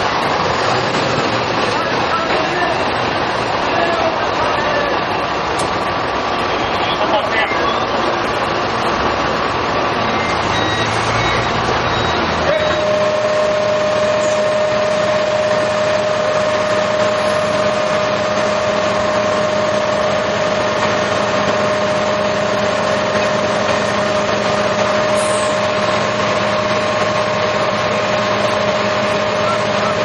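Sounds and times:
engine and pump whining: 0:00.0 - 0:30.0
water jets hissing: 0:13.0 - 0:29.8.

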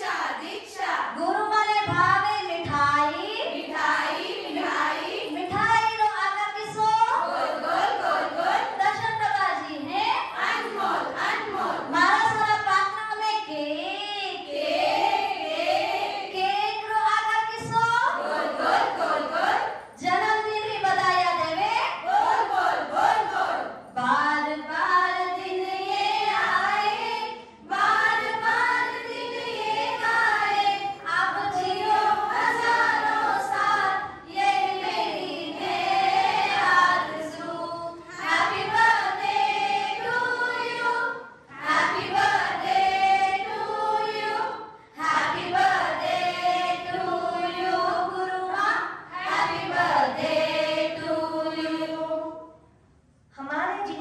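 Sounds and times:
women singing together: 0:00.0 - 0:52.6.

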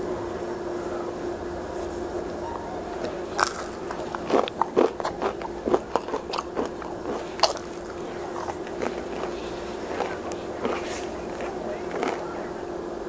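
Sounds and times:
crunchy biting and chewing: 0:03.0 - 0:12.4.

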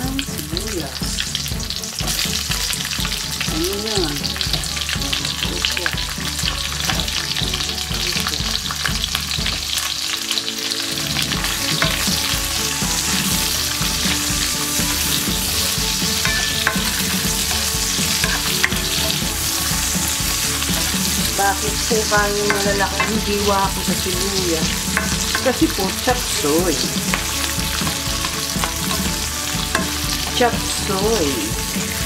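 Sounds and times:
onions sizzling in oil: 0:00.0 - 0:32.0
spoon scraping pan: 0:10.7 - 0:32.0.

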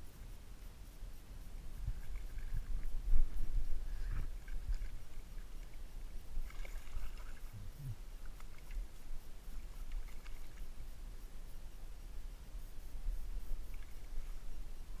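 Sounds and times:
low steady rumble: 0:00.0 - 0:15.0
water splashing and sloshing: 0:01.7 - 0:10.9, 0:13.0 - 0:15.0.

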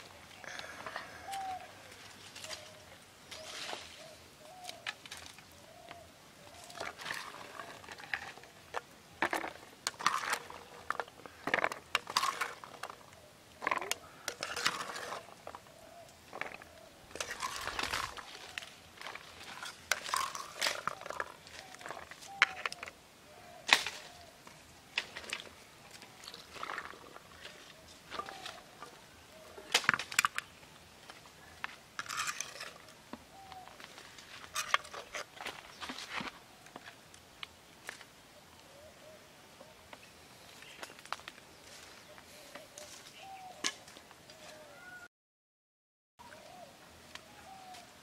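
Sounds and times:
ladle stirring seeds in water: 0:06.6 - 0:13.0, 0:13.6 - 0:15.6, 0:16.3 - 0:22.8.

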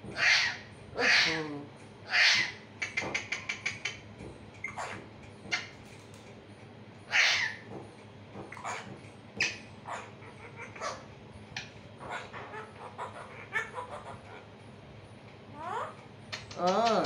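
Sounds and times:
parakeet screeching calls: 0:00.2 - 0:04.0, 0:04.6 - 0:05.8, 0:07.1 - 0:07.7, 0:08.5 - 0:11.1, 0:12.0 - 0:14.5.

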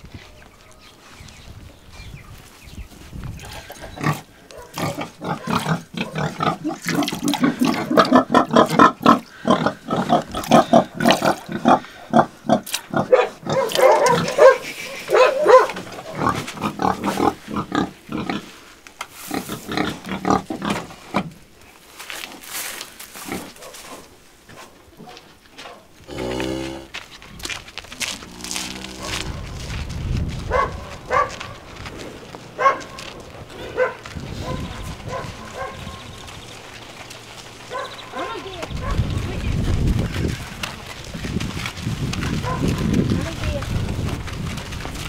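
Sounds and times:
pigs grunting and squealing: 0:03.4 - 0:18.6, 0:19.2 - 0:21.4.

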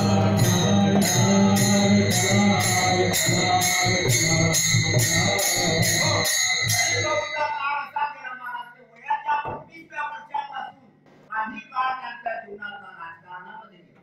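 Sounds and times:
barrel drum: 0:00.0 - 0:06.8
people singing: 0:00.0 - 0:07.4
hand cymbals ringing: 0:00.0 - 0:08.3.

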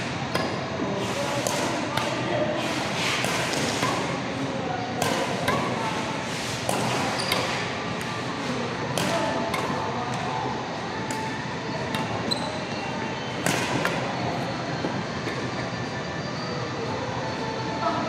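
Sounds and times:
steady background hum: 0:00.0 - 0:18.0
rackets hitting shuttlecock: 0:00.3 - 0:08.1, 0:08.9 - 0:10.2, 0:11.1 - 0:12.4, 0:13.3 - 0:14.1.

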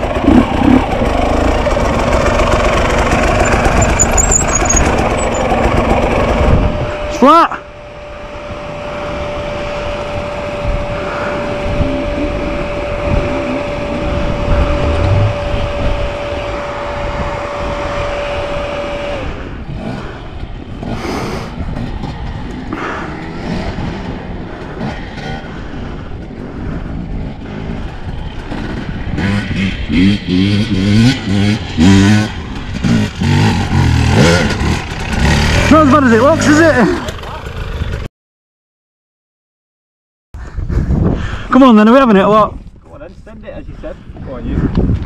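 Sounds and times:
steady whine: 0:00.0 - 0:17.4
motorcycle engine revving: 0:00.0 - 0:38.1.

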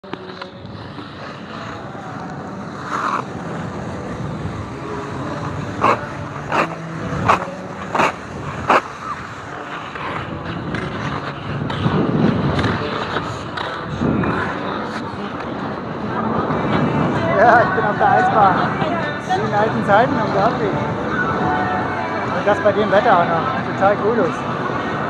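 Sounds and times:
skate blades scraping on ice: 0:00.0 - 0:16.9
steady rushing noise: 0:00.0 - 0:25.0.

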